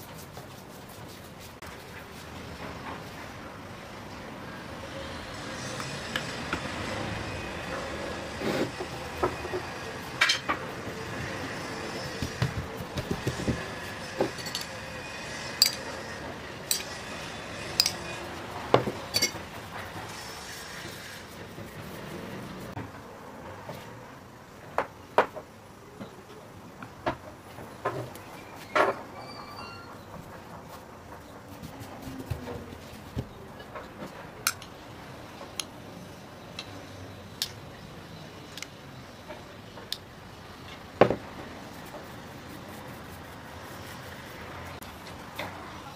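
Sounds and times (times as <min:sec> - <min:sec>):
hands patting dough on wood: 0:12.0 - 0:14.4, 0:31.5 - 0:33.4
kitchenware clinking: 0:14.2 - 0:14.8, 0:18.8 - 0:19.4.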